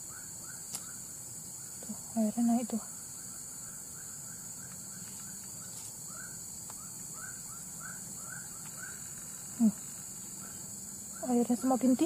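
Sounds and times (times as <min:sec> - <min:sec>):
high-pitched insect drone: 0:00.0 - 0:12.0
short chirping calls: 0:03.1 - 0:12.0.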